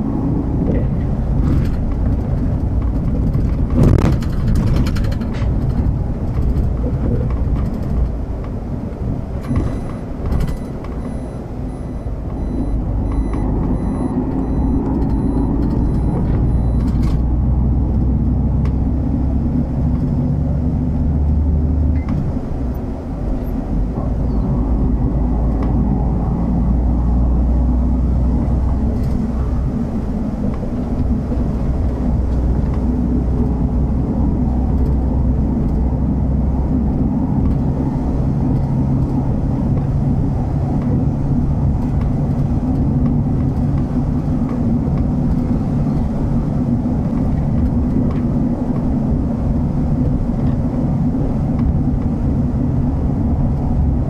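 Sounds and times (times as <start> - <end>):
bus engine and road rumble: 0.0 - 54.0
faint high pulsing tone: 9.5 - 16.9.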